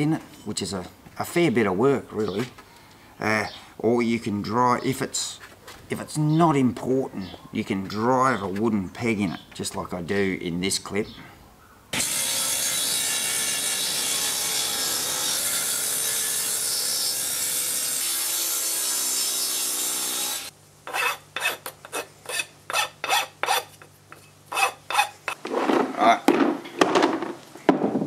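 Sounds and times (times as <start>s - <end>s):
table saw cutting wood: 12.0s - 23.7s
hand file rasping wood: 20.9s - 25.4s.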